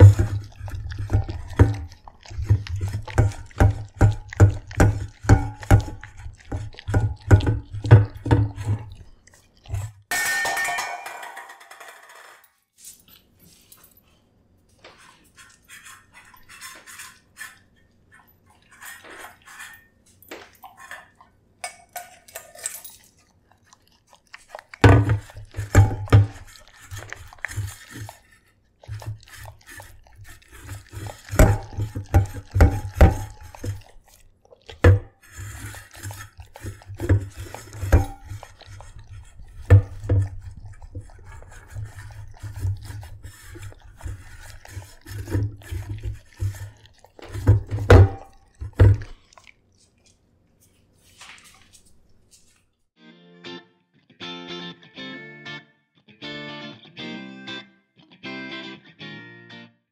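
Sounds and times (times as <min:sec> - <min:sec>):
metal bowl clinking: 0:00.0 - 0:08.9, 0:09.7 - 0:14.0, 0:24.8 - 0:28.4, 0:29.0 - 0:34.0, 0:34.8 - 0:49.2
dog chewing and licking: 0:00.0 - 0:10.1, 0:14.8 - 0:52.8.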